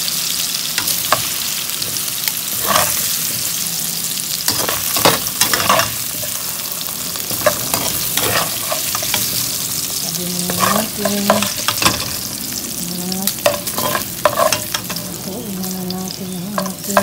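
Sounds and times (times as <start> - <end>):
oil sizzling in a wok: 0.0 - 17.0
metal scraping against a pan: 0.8 - 3.6, 4.4 - 12.3, 13.3 - 15.6.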